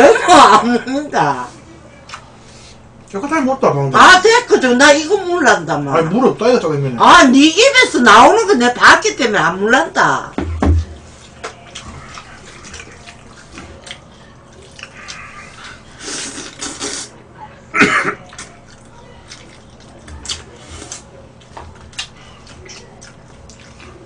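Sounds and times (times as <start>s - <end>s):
chewing: 11.0s - 17.1s, 18.2s - 24.0s
noodles slurping: 11.2s - 17.2s.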